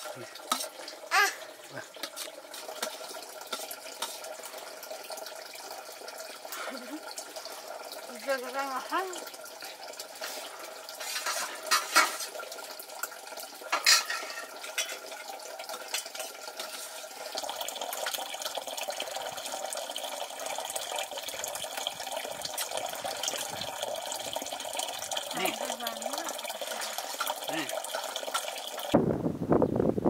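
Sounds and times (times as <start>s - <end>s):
pots or dishes clinking: 0.0s - 1.0s, 2.0s - 4.6s, 9.6s - 17.5s, 24.4s - 28.8s
running water: 0.0s - 29.0s
water splashing and pouring: 0.0s - 29.0s.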